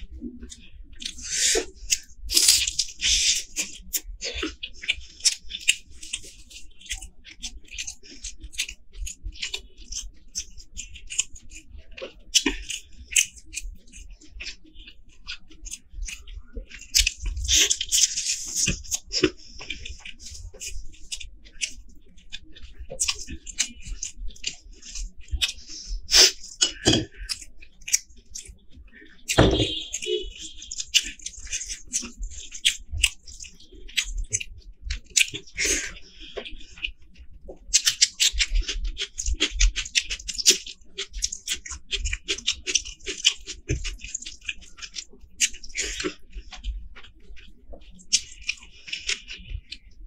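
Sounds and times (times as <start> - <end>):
wet chewing and biting: 0.2 - 50.0
crunching and tearing: 1.0 - 8.8.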